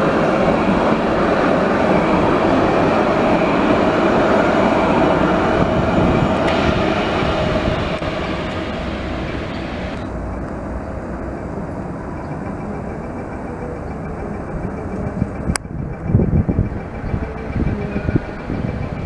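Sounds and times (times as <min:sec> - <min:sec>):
tram approaching rumble: 0:00.0 - 0:19.0
tram wheels on rails: 0:00.0 - 0:19.0.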